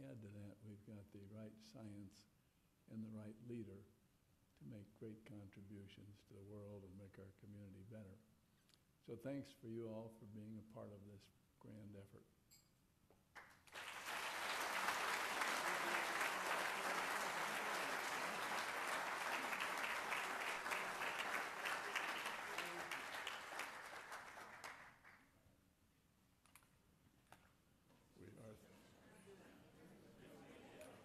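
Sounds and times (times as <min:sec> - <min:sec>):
audience applauding: 0:13.4 - 0:25.2.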